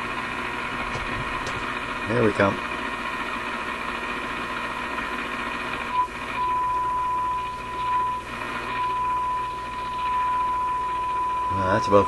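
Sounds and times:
steady test tone: 5.9 - 12.0.

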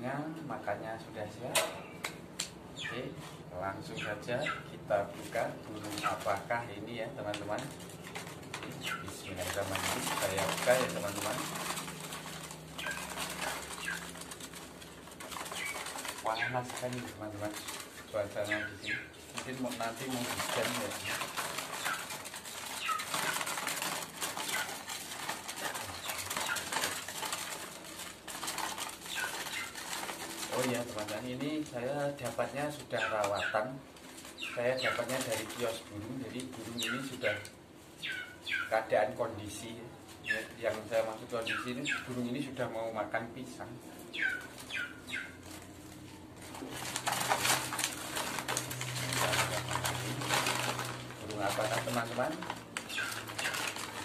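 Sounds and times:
bird chirps: 2.7 - 3.0, 3.9 - 4.7, 12.7 - 14.3, 18.4 - 19.3, 20.1 - 23.4, 36.7 - 38.7, 41.4 - 42.1, 44.1 - 45.4
falling bird chirps: 4.0 - 4.7, 8.6 - 31.0, 34.2 - 35.4, 36.6 - 38.7, 41.4 - 42.2, 44.1 - 45.7, 52.8 - 54.0
paper bag crinkling: 4.0 - 39.6, 40.3 - 54.0.

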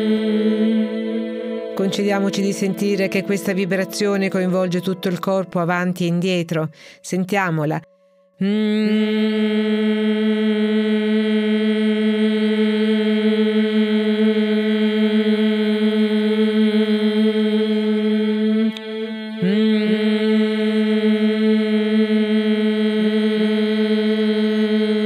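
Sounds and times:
woman singing sustained vowel: 0.0 - 25.0.

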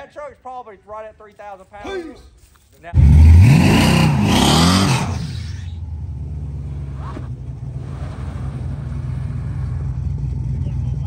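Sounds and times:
race car engine revving and idling: 3.0 - 11.0.

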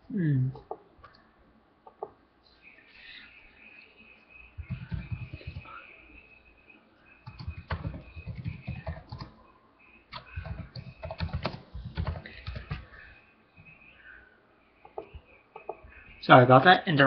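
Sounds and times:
keyboard typing: 4.6 - 5.8, 7.2 - 9.4, 10.1 - 13.1.

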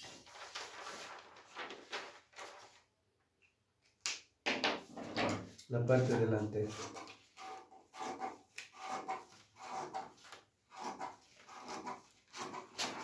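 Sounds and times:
paper rustling: 0.0 - 2.9.

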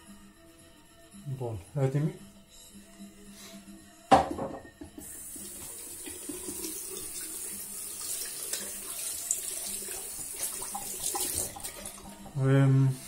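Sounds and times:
tap water running into sink: 5.0 - 12.4.

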